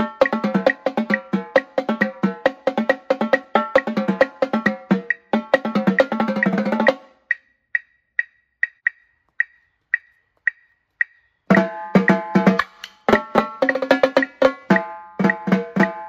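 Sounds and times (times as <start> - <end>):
metronome clicks: 0.0 - 1.4, 3.3 - 16.0
marching tenor drums: 0.0 - 7.0.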